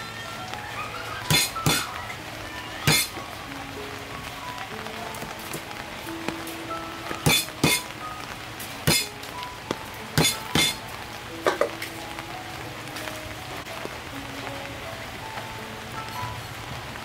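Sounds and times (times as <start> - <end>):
cleaver chopping on wooden board: 1.3 - 1.9, 7.2 - 7.8, 8.9 - 9.1, 10.2 - 10.8.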